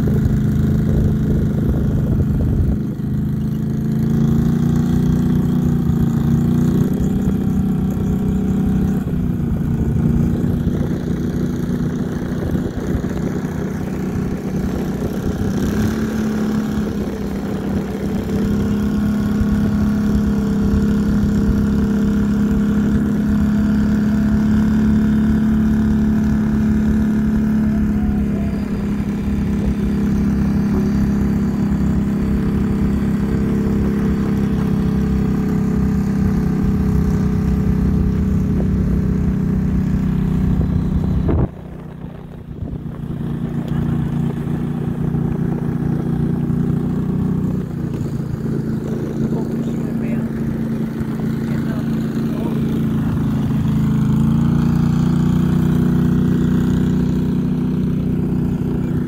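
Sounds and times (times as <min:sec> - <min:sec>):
vehicle engine running: 0:00.0 - 0:59.0.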